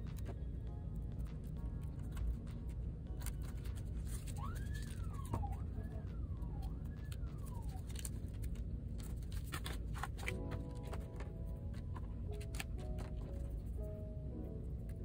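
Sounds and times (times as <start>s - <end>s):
steady low hum: 0.0s - 15.0s
hands handling tape and paper: 1.8s - 6.0s, 7.0s - 13.6s
faint siren wailing: 3.0s - 9.9s.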